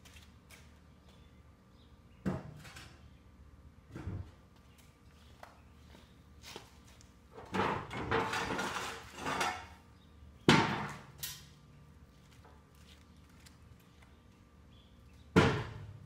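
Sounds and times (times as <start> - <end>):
metal ramp scraping and rattling: 7.4 - 9.8.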